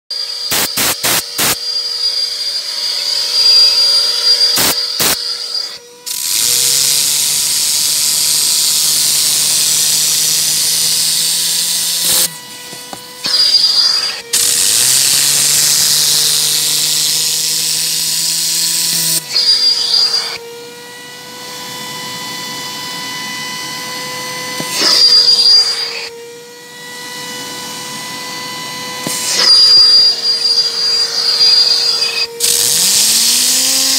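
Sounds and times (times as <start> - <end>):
vacuum cleaner whine: 0.1 - 33.9
compressed air hissing: 0.5 - 1.6, 6.1 - 12.3, 13.3 - 19.2, 31.0 - 33.9.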